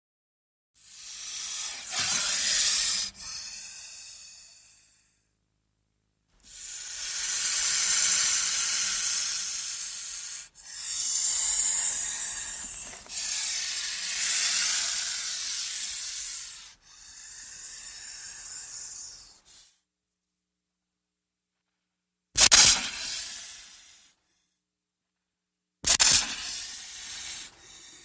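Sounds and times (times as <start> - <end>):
snake hissing: 0.8 - 5.2, 6.4 - 19.8, 22.4 - 24.2, 25.8 - 28.0.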